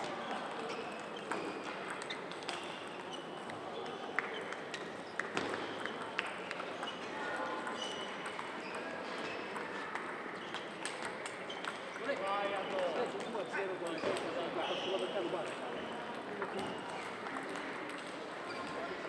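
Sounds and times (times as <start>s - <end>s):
murmur of voices: 0.0s - 19.0s
table tennis balls clicking: 0.9s - 3.6s, 4.2s - 12.1s.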